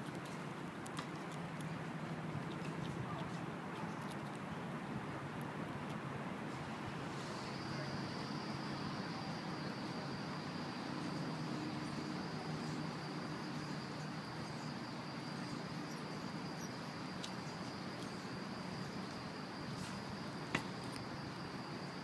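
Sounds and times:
steady hiss: 0:06.4 - 0:22.0.

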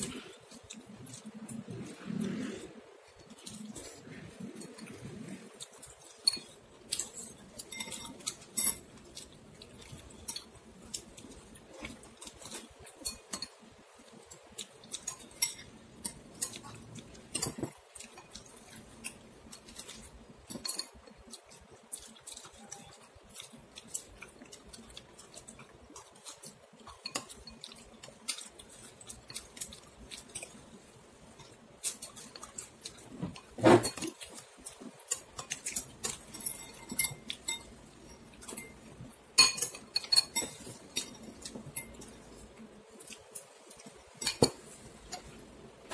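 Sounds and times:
spoon and chopsticks clinking on bowl: 0:06.0 - 0:09.2, 0:14.9 - 0:24.1, 0:26.2 - 0:30.6, 0:35.1 - 0:42.2.

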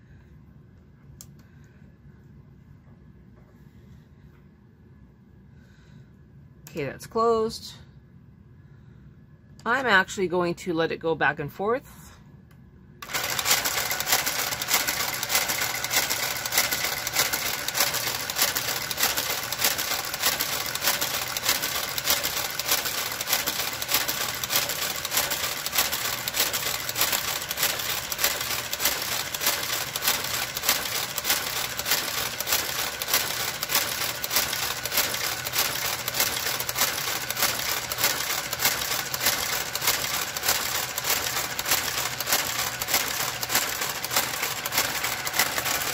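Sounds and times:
knitting machine clattering: 0:13.0 - 0:45.9.

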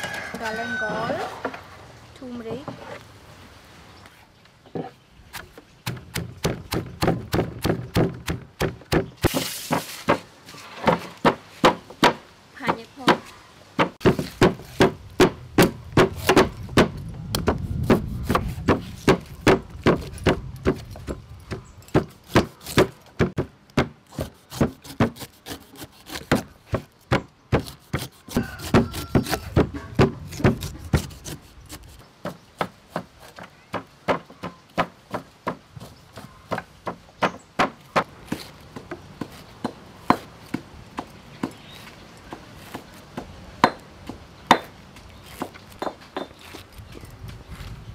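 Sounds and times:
low rumbling: 0:14.9 - 0:22.3.

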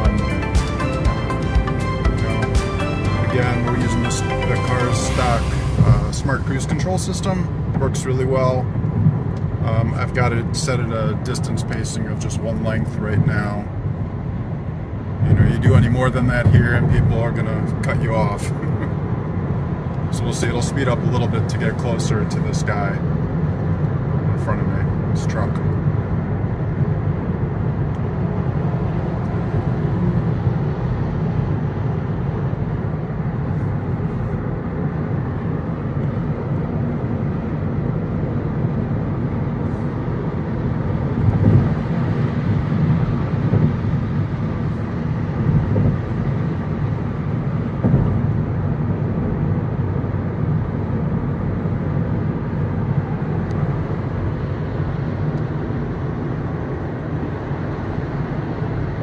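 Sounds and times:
road and tyre noise in car: 0:00.0 - 0:59.0.

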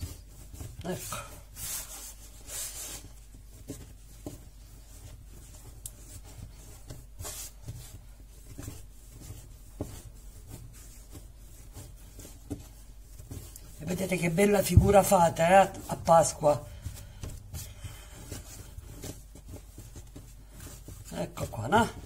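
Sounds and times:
hands kneading dough: 0:00.0 - 0:22.0
dough knocking on tiles: 0:03.4 - 0:13.8.

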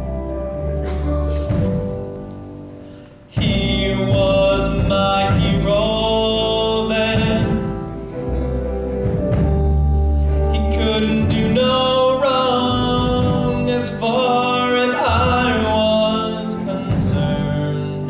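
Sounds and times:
ballad accompaniment with bass: 0:00.0 - 0:18.0.

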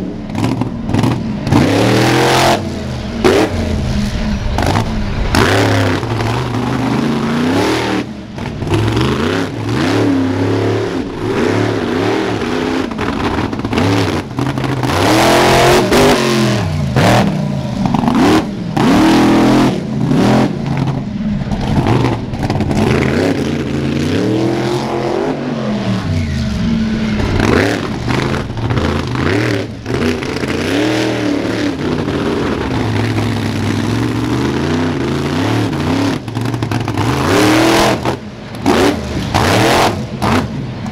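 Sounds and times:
monster truck engine revving: 0:00.0 - 0:40.9.

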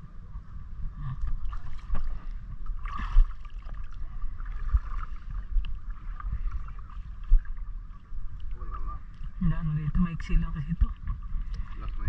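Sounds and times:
seawater sloshing and splashing: 0:01.2 - 0:09.4, 0:10.8 - 0:12.0.

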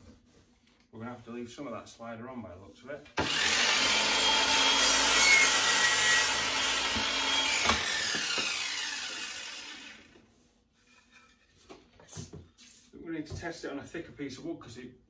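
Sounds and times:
mitre saw cutting wood: 0:03.2 - 0:10.2.

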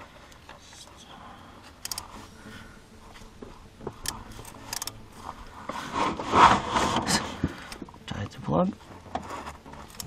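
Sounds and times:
wrench threading drain plug: 0:01.8 - 0:02.0
short metallic clicks: 0:01.8 - 0:02.1, 0:04.0 - 0:05.0.

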